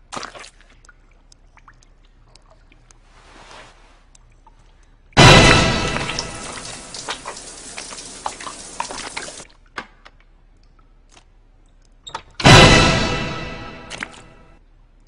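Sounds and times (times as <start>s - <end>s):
horror film sting: 5.2s - 7.0s, 12.4s - 14.5s
shower water hissing: 5.7s - 9.4s.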